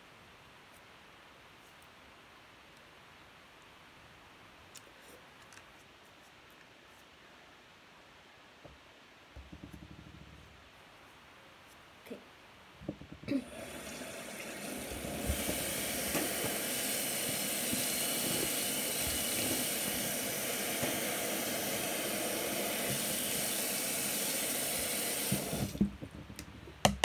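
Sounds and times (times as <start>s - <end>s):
tap running into sink: 9.4s - 10.2s, 12.8s - 27.0s.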